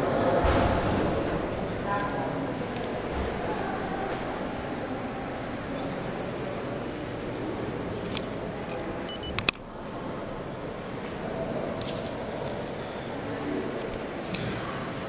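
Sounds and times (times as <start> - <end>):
murmur of voices: 0.0 - 15.0
high-pitched electronic beeps: 6.1 - 6.4, 7.1 - 7.4, 8.1 - 8.4, 9.1 - 9.4.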